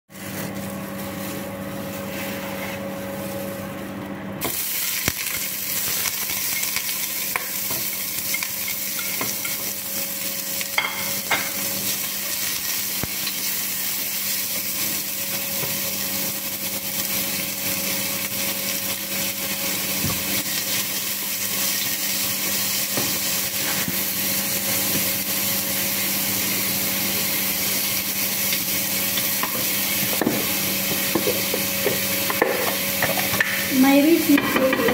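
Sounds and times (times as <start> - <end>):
food sizzling in a pot: 0.1 - 34.9
wooden spoon scraping: 0.2 - 3.6.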